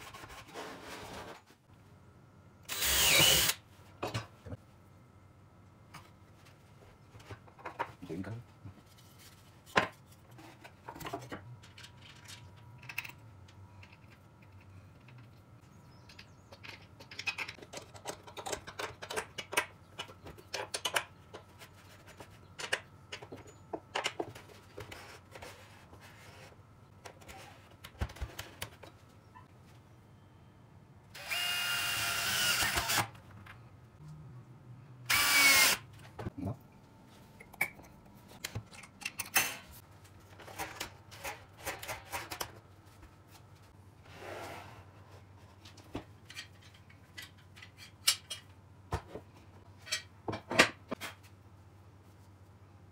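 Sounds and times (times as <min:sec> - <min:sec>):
power drill running: 0:02.7 - 0:03.6, 0:31.2 - 0:33.1, 0:35.1 - 0:35.8
wooden parts clicking and knocking: 0:11.1 - 0:21.5.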